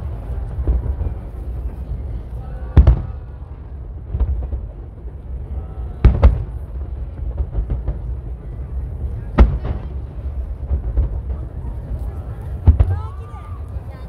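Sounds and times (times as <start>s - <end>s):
firework shells booming: 2.6s - 11.6s, 12.5s - 13.2s.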